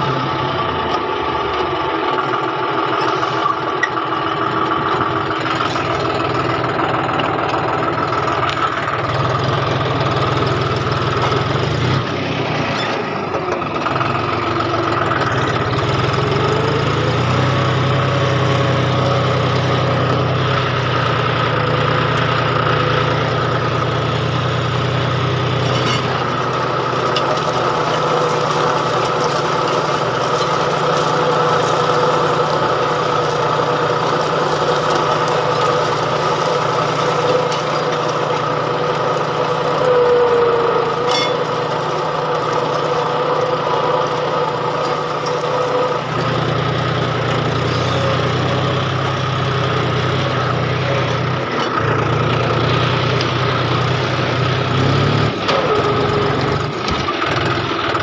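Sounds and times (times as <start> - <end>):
tractor diesel engine running: 0.0 - 58.0
high-pitched whine: 39.7 - 41.6.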